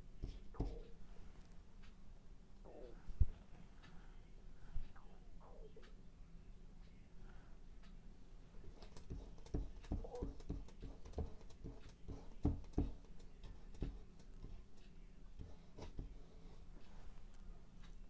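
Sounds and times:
paintbrush knocking on canvas: 0:00.2 - 0:00.8, 0:09.1 - 0:14.0.

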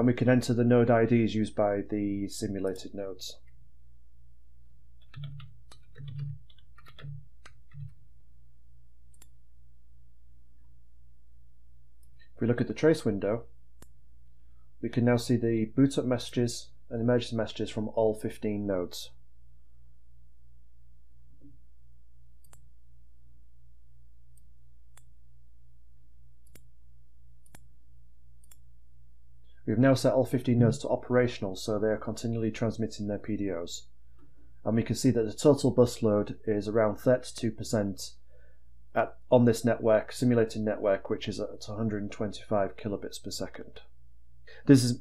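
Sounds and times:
keyboard keys clicking: 0:05.0 - 0:08.0
mouse click: 0:09.1 - 0:09.4, 0:13.8 - 0:14.0, 0:22.4 - 0:22.7, 0:24.3 - 0:25.1, 0:26.4 - 0:26.7, 0:27.4 - 0:27.7, 0:28.4 - 0:28.6.

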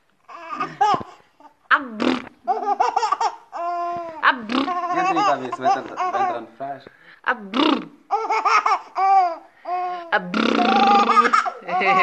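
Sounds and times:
baby laughing: 0:00.3 - 0:01.5, 0:02.2 - 0:06.6, 0:08.1 - 0:12.0
baby gasping breaths: 0:08.6 - 0:10.1.

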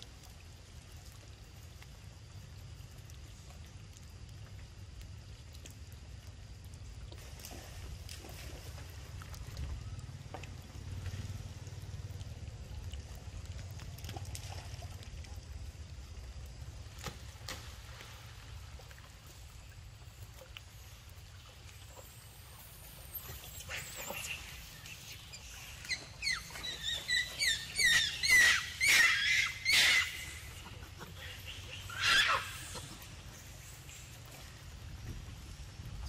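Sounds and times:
macaques squealing: 0:25.8 - 0:33.0.

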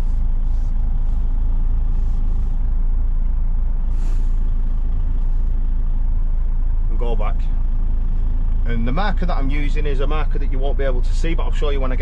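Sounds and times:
diesel engine running at low revs: 0:00.0 - 0:12.0
air brake hiss: 0:03.9 - 0:04.5.

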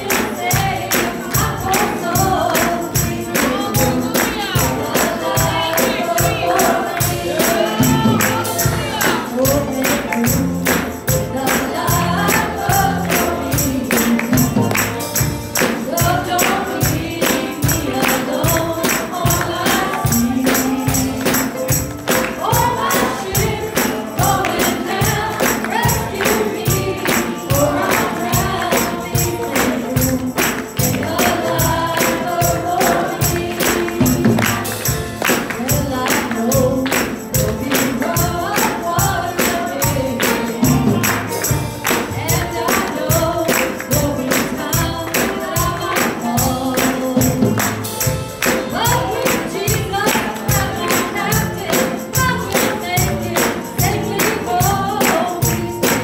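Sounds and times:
woman singing gospel song: 0:00.0 - 0:15.0, 0:15.6 - 0:47.8, 0:48.4 - 0:56.0
musical accompaniment with beat: 0:00.0 - 0:56.0.

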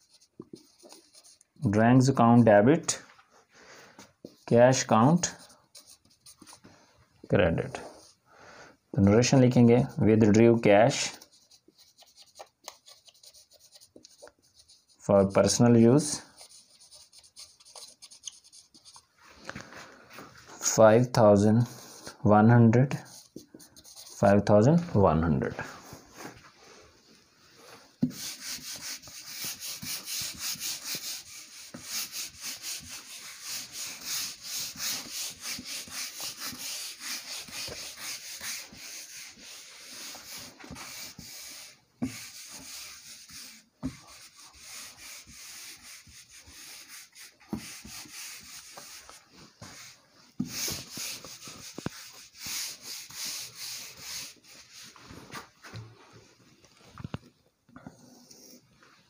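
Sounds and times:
duster wiping whiteboard: 0:00.0 - 0:02.2, 0:09.2 - 0:22.2, 0:22.9 - 0:25.0, 0:27.6 - 0:55.8.

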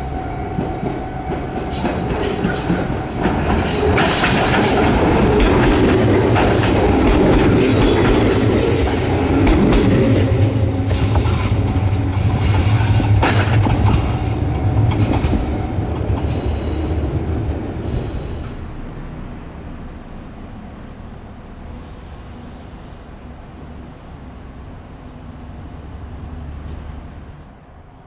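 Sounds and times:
wheels clacking over rail joints: 0:00.6 - 0:17.6.

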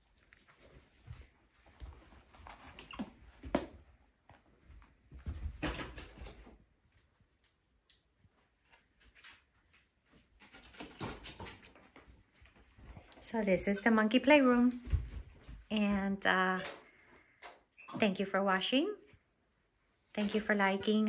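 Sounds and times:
rustling: 0:00.0 - 0:13.3.

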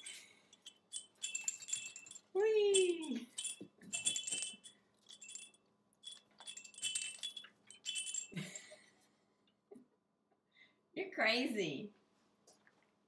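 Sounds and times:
small bell jingling: 0:00.0 - 0:08.8.

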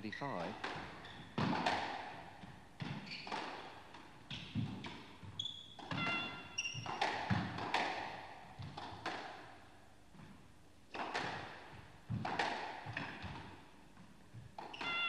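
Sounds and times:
shoes squeaking on court floor: 0:00.0 - 0:01.8, 0:02.4 - 0:07.7, 0:14.3 - 0:15.0
squash ball hitting rackets and walls: 0:00.4 - 0:15.0.

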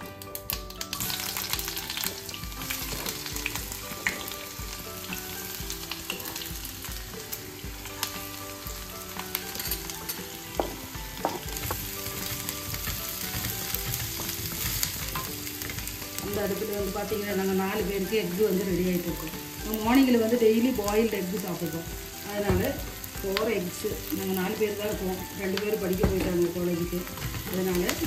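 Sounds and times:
vegetables sizzling in hot oil: 0:00.0 - 0:28.0
wooden spatula stirring: 0:08.7 - 0:16.6.

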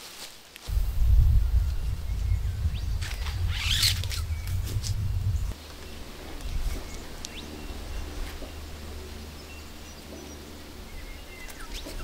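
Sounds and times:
low rumble: 0:00.7 - 0:06.7.

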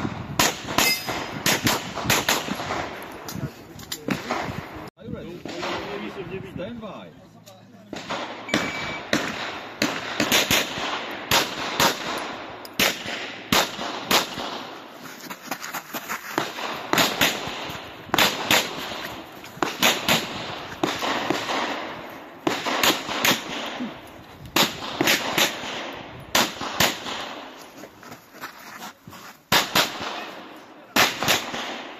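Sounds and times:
pistol shots cracking: 0:07.9 - 0:14.8, 0:16.4 - 0:27.5, 0:29.5 - 0:31.9.

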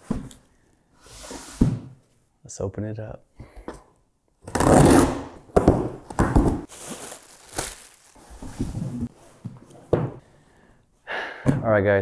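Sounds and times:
plastic packing crinkling: 0:06.7 - 0:08.8.

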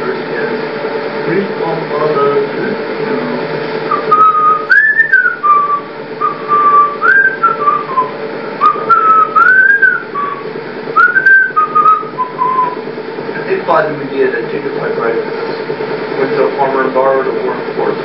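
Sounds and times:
steady background hum: 0:00.0 - 0:18.0
person whistling a tune: 0:03.9 - 0:10.4, 0:11.0 - 0:12.8.

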